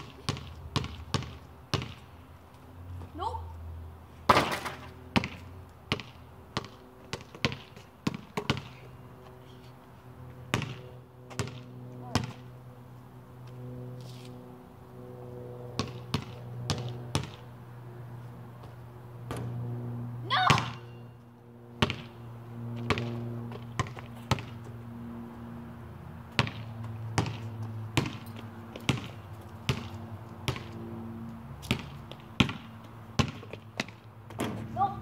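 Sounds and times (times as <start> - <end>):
basketball bouncing on concrete: 0.0 - 2.1, 4.3 - 9.0, 10.4 - 12.5, 15.8 - 17.5, 20.5 - 21.0, 21.8 - 24.8, 26.3 - 34.8
steady low hum: 0.0 - 35.0.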